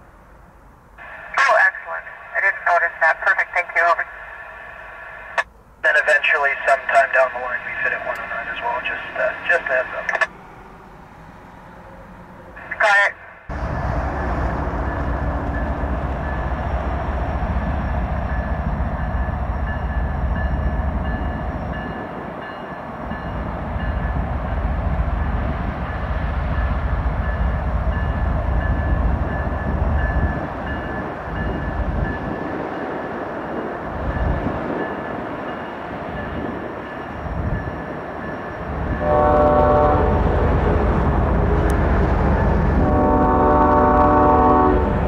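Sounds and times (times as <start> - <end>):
diesel locomotives rumbling: 0.0 - 45.0
locomotive horn: 38.9 - 40.9, 42.8 - 45.0.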